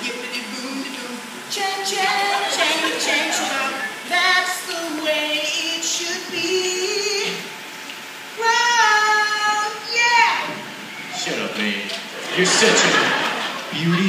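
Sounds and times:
young voices singing: 0.0s - 7.6s.

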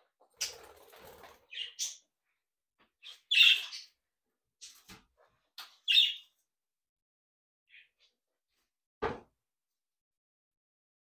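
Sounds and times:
budgies chirping: 0.4s - 2.1s, 3.0s - 4.0s, 5.8s - 6.3s.

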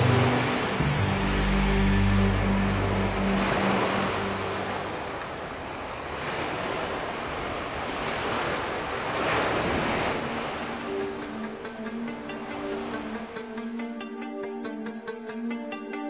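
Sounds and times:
background music: 0.0s - 5.6s, 10.3s - 16.0s
sea waves washing on shore: 0.0s - 14.5s.

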